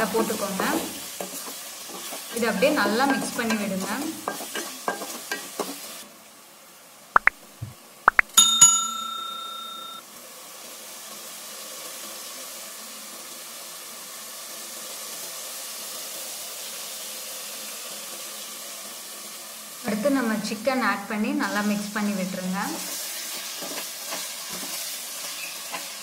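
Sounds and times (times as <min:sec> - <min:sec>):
paste sizzling in oil: 0:00.0 - 0:06.1, 0:10.2 - 0:20.4, 0:21.4 - 0:26.0
short metallic ring: 0:08.3 - 0:10.0.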